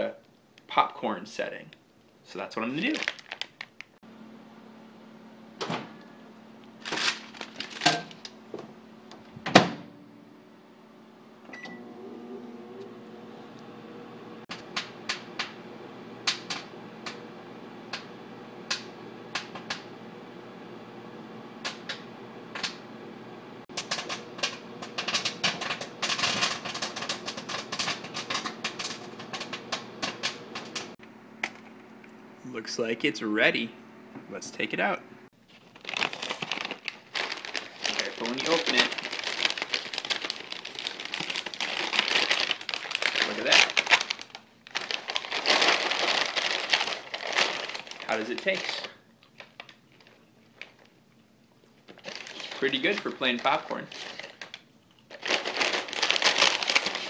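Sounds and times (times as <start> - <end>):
microwave oven humming: 4.0 - 35.5
popcorn popping: 14.5 - 15.6, 16.2 - 19.9, 21.6 - 22.8, 23.7 - 31.6, 36.0 - 50.0.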